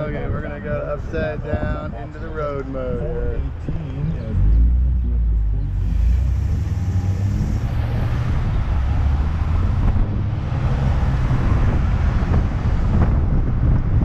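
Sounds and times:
wind and tyre hiss: 0.0 - 4.9, 5.7 - 14.0
car engine and road rumble: 0.0 - 14.0.

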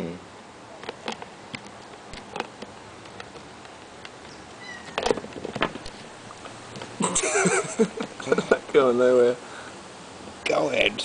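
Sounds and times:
faint clicks and light taps: 0.8 - 6.9
cat meowing: 4.6 - 5.0.

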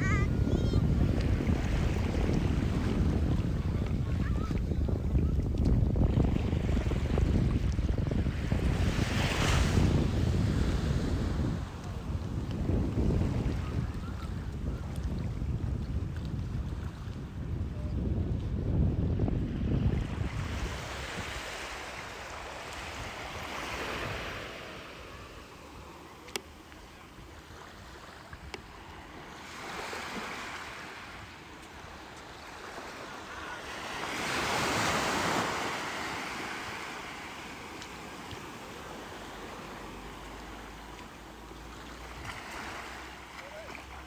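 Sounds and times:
wind buffeting microphone: 0.0 - 25.4
ocean surf washing ashore: 0.0 - 44.0.

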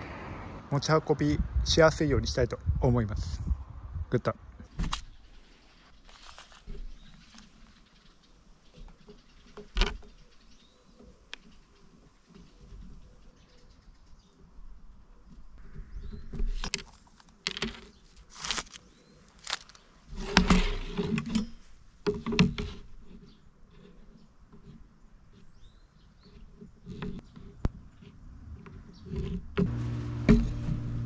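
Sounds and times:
wooden board and tools clattering: 16.1 - 18.8, 19.4 - 23.4, 26.4 - 30.9
power tool motor running: 29.7 - 31.0.

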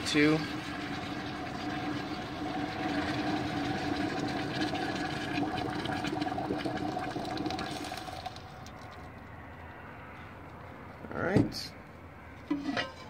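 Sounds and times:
boiling water pouring: 0.0 - 9.2.

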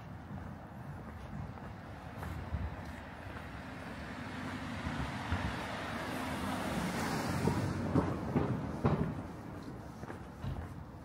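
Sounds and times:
car passing: 0.0 - 11.0
sharp knocks: 7.3 - 9.4.

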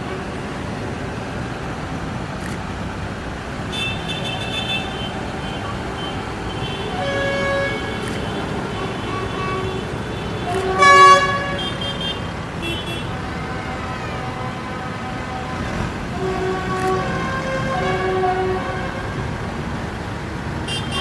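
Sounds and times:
tractor engines rumbling: 0.0 - 21.0
vehicle horns tooting: 3.7 - 19.3, 20.7 - 21.0.

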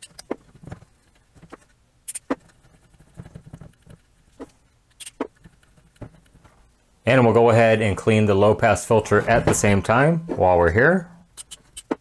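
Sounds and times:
scratchy handling sounds: 0.0 - 6.7.

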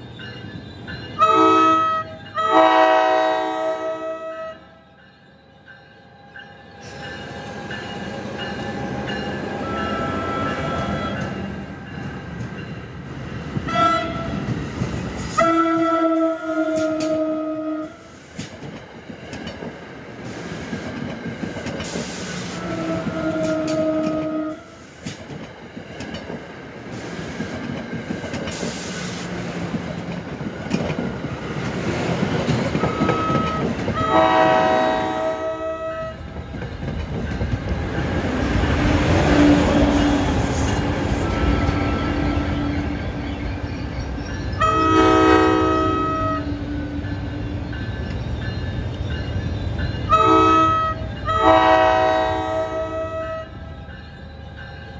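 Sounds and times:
train rumble and rail noise: 0.0 - 54.9
locomotive horn blasts: 1.2 - 4.8, 13.7 - 14.4, 15.4 - 18.1, 22.6 - 24.8, 32.8 - 36.3, 44.6 - 47.0, 50.1 - 53.6.

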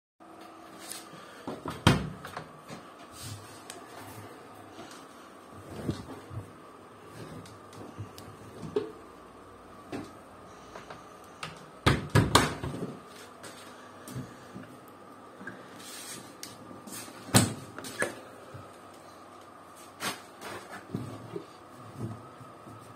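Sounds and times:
washing machine door knocks: 11.8 - 12.7.

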